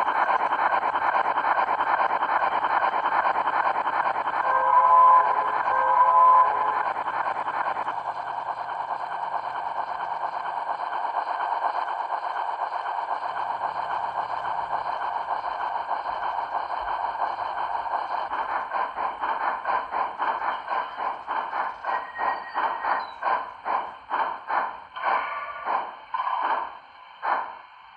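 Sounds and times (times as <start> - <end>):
model train running sound: 0.0 - 27.9.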